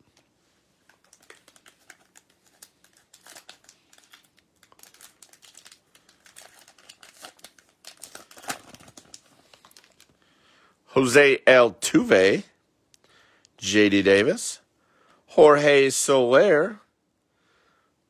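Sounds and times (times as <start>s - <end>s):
foil wrapper tearing: 0.9s - 10.1s.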